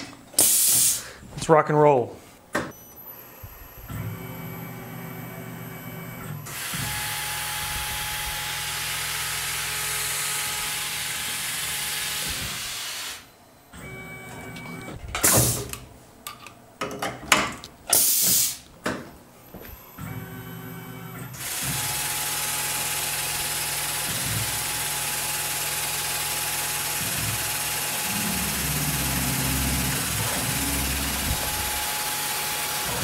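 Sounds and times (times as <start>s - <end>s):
coolant spray hissing: 0.4s - 1.0s
mill spindle humming: 19.4s - 33.0s.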